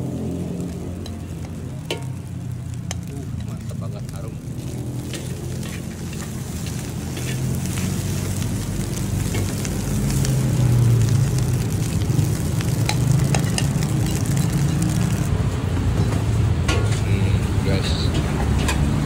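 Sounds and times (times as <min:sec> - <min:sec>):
frying sizzle: 0:00.0 - 0:19.0
spatula scraping rice in wok: 0:05.0 - 0:08.4.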